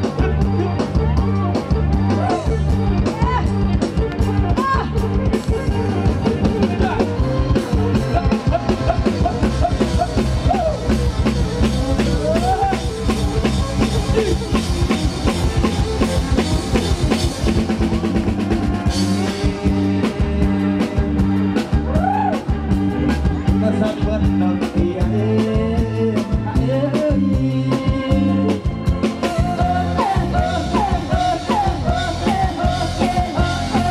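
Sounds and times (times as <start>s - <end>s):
drum kit beat: 0.0s - 33.9s
electric bass: 0.0s - 33.9s
bowed fiddle melody: 0.1s - 31.5s.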